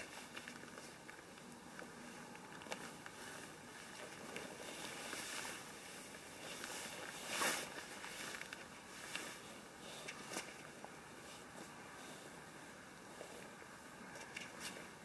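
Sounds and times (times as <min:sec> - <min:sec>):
tarp rustling and scuffing: 0:03.8 - 0:09.5.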